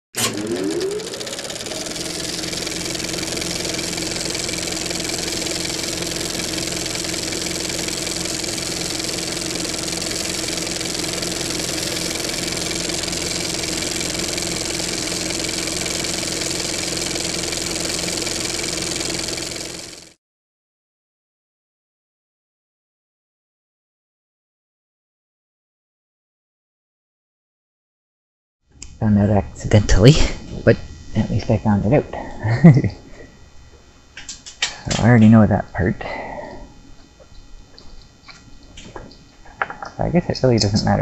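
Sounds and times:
motor drone spinning up: 0.2s - 20.2s.

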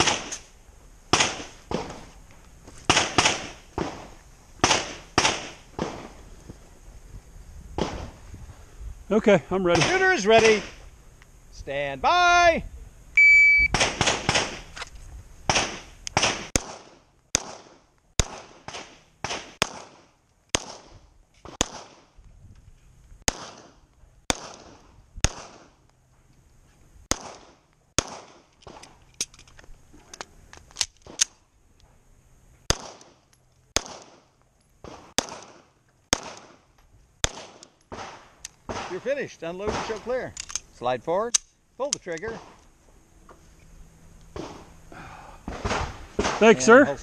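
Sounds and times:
pistol shots: 2.9s - 6.1s, 13.7s - 14.7s, 15.5s - 20.9s, 21.5s - 22.0s, 23.3s - 23.7s, 24.3s - 25.7s, 27.1s - 28.8s, 32.7s - 33.2s, 33.8s - 34.2s, 34.8s - 36.6s, 37.2s - 39.0s.

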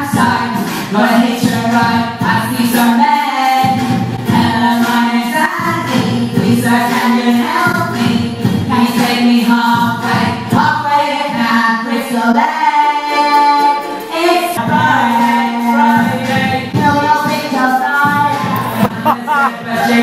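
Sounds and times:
women singing into microphones: 0.0s - 20.0s.

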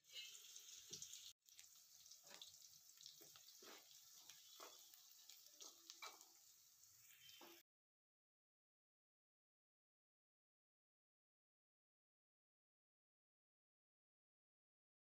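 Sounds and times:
onions sizzling in hot oil: 0.0s - 7.6s
spoon stirring in pan: 0.0s - 7.6s.

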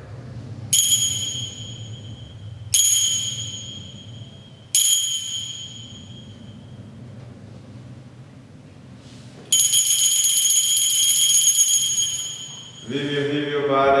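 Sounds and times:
altar bells jingling: 0.8s - 6.7s, 9.5s - 13.3s.

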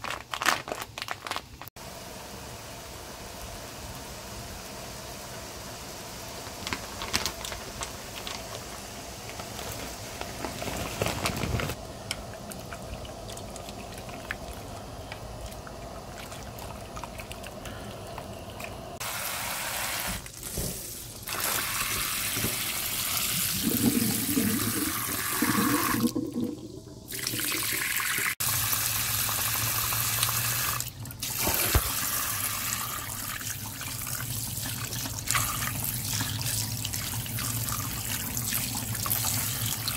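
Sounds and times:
water boiling in a pot: 1.8s - 39.9s
running and splashing water: 12.2s - 28.4s.

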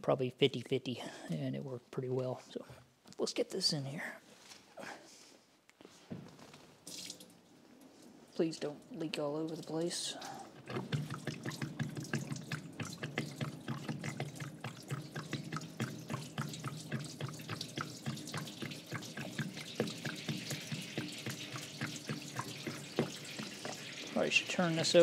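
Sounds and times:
liquid pouring and splashing: 6.8s - 25.0s.

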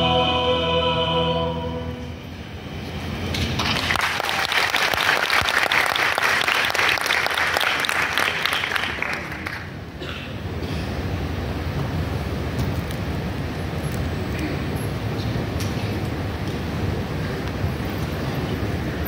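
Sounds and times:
choir holding a chord: 0.0s - 2.6s
audience applause: 3.6s - 9.8s.

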